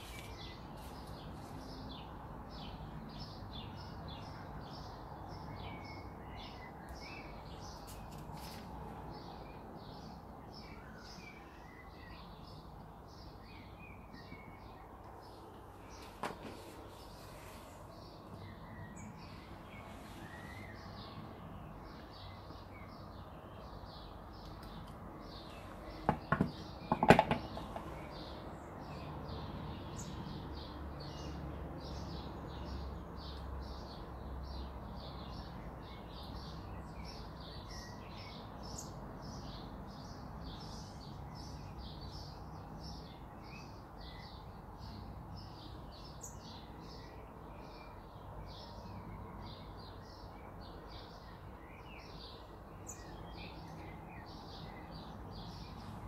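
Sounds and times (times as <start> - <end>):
small birds chirping: 0.0 - 56.0
sharp knocks: 26.0 - 27.9.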